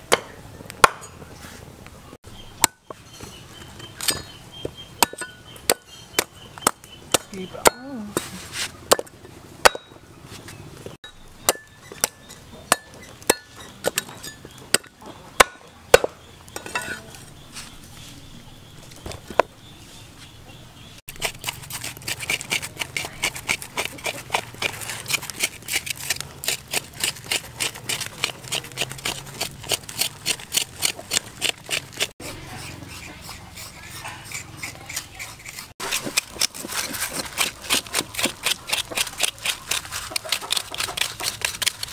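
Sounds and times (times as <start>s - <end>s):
metal spoon scraping charred meat: 21.1s - 41.9s.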